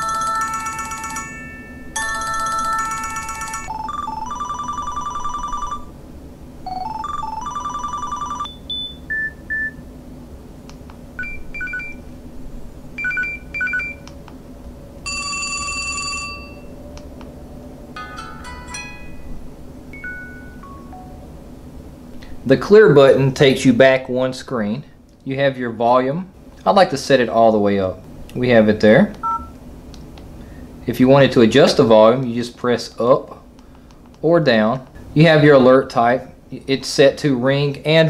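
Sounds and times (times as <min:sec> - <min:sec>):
phone ringtones and alert sounds: 0:00.0 - 0:05.9, 0:06.7 - 0:09.7, 0:11.2 - 0:12.0, 0:13.0 - 0:14.0, 0:15.0 - 0:17.0, 0:18.0 - 0:21.4.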